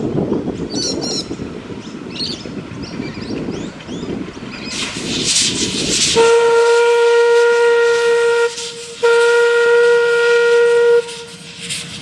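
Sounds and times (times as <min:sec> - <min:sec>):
steam hissing: 0:04.5 - 0:12.0
steam whistle blasts: 0:06.1 - 0:11.5.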